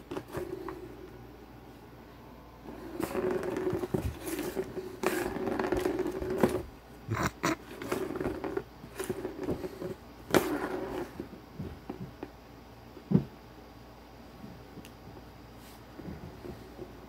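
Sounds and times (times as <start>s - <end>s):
plastic ball rolling on track: 2.7s - 11.3s.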